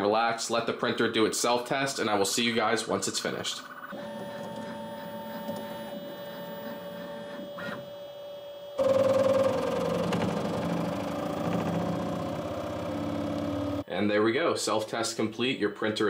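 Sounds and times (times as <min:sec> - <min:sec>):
multi-tone motor hum: 0:03.8 - 0:13.9
printer motor and fan whine: 0:03.9 - 0:13.8.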